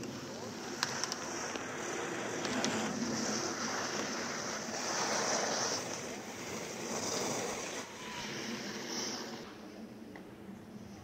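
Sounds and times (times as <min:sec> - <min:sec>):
skis scraping on hard snow: 0:00.1 - 0:09.5.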